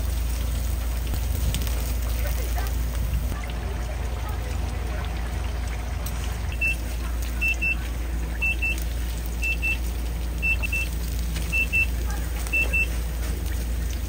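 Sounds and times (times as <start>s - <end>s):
steady low hum: 0.0s - 14.0s
electronic alarm beeping: 6.5s - 7.8s, 8.4s - 8.8s, 9.4s - 13.0s.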